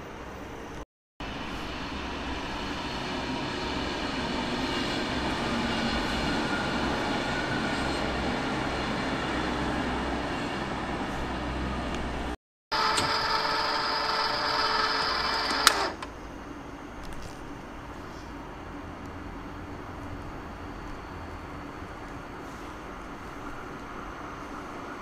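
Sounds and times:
faint electric drive whine: 12.8 - 16.6.

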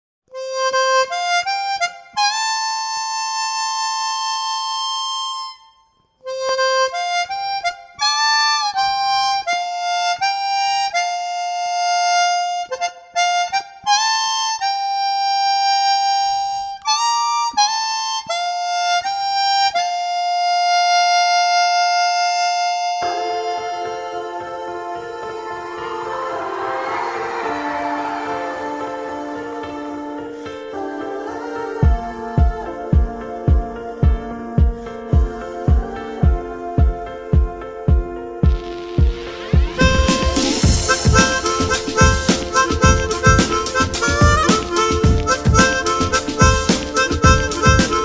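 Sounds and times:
reedy melody of held notes: 14.6 - 48.0.

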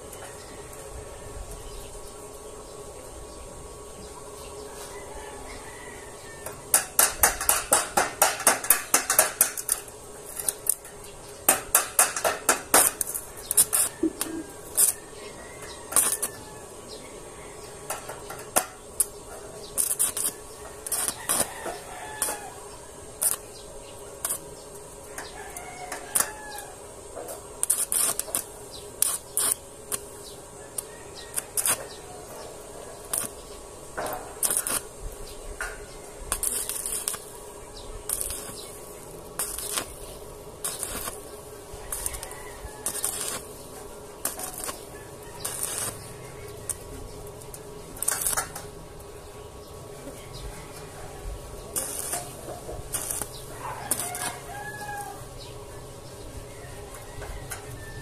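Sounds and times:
steady hum: 0.0 - 58.0
welding arc crackling: 0.0 - 58.0.

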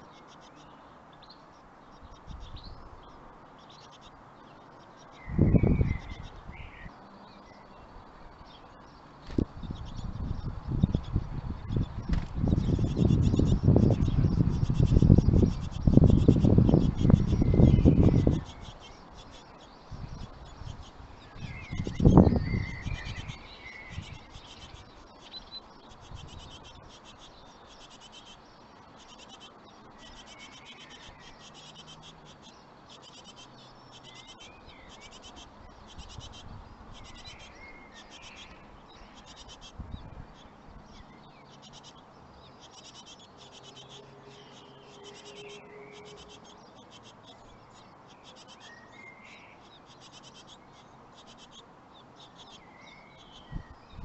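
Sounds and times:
low bird chirps: 0.0 - 54.0
nestlings begging with buzzy chirps: 0.0 - 54.0.

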